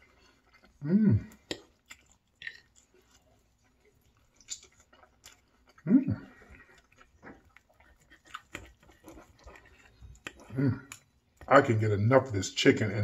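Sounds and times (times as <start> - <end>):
man chewing food: 0.0 - 12.0
man humming: 0.8 - 1.3.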